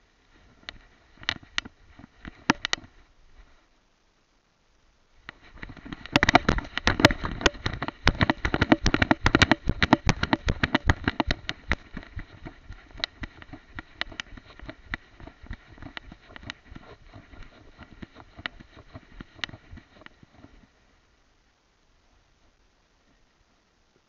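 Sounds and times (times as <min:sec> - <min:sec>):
camera rattling clicks and knocks: 0:00.6 - 0:02.9, 0:05.3 - 0:20.6.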